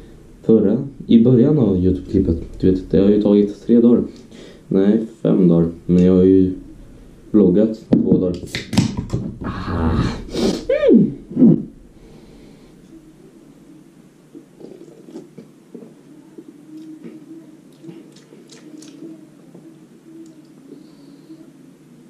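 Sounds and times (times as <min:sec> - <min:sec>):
sip and swallow: 0:14.3 - 0:15.9
lip smacks and clicks: 0:17.7 - 0:19.0.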